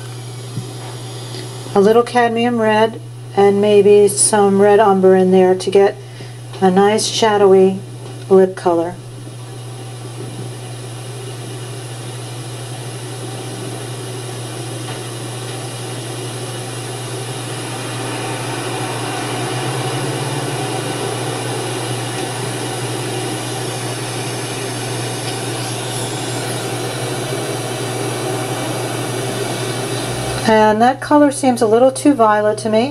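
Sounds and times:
steady low hum: 0:00.0 - 0:32.9
even hiss: 0:12.2 - 0:30.6.

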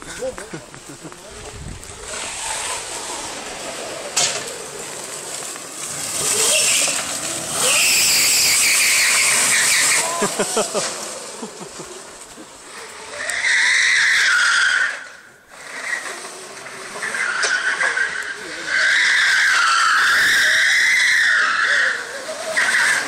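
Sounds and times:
go-kart engine revving: 0:00.0 - 0:23.0
tyre squeal: 0:05.8 - 0:11.0, 0:12.7 - 0:23.0.

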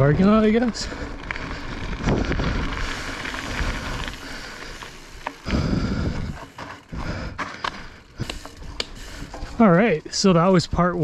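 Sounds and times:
tyre rumble on trail: 0:00.9 - 0:10.6
wind rushing over microphone: 0:01.4 - 0:04.2, 0:05.4 - 0:07.4
bike knocks and rattles: 0:02.1 - 0:10.2.

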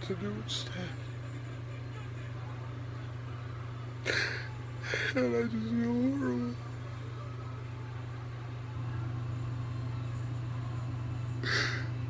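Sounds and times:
room hum: 0:00.0 - 0:12.0
man sniffling while crying: 0:04.0 - 0:05.2, 0:11.4 - 0:12.0.

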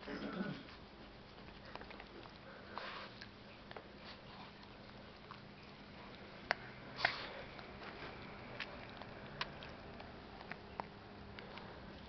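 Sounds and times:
small dog sniffing: 0:01.4 - 0:09.8.

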